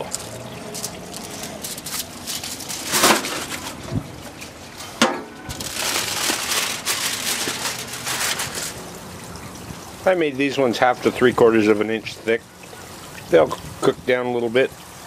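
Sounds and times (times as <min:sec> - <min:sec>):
aluminium foil crinkling: 0:00.0 - 0:08.9.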